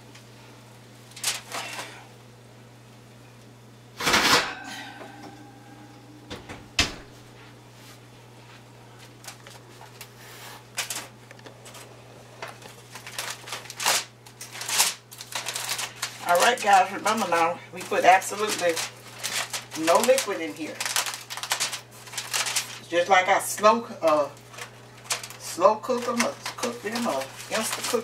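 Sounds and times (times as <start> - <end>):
steady low hum: 0.0 - 28.0
metal clank ringing: 4.1 - 6.4.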